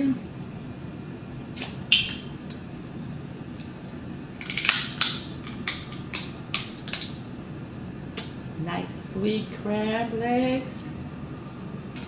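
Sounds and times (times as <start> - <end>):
close eating sounds: 3.6 - 7.3
crab shell cracking: 4.4 - 7.2.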